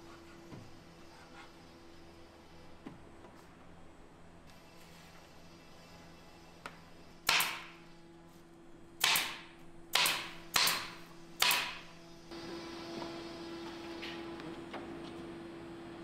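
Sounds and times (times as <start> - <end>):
nail gun firing into plywood: 7.3 - 7.7, 9.0 - 11.8.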